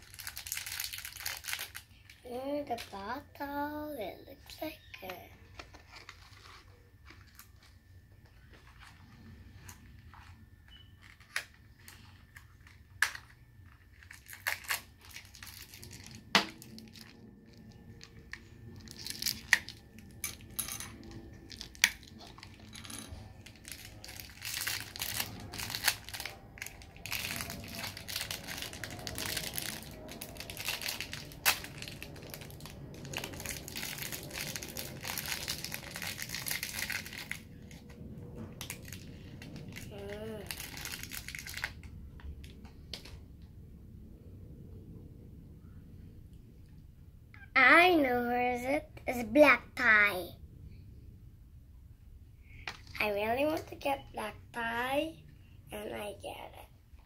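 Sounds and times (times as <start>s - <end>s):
wrapper crinkling: 0.0s - 3.0s, 11.0s - 37.9s, 38.6s - 41.9s.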